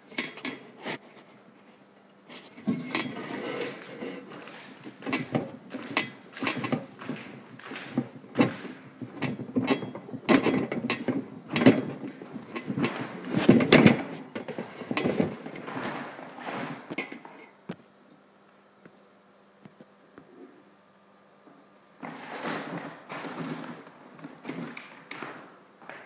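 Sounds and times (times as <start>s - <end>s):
footsteps on parquet floor: 3.6s - 10.2s.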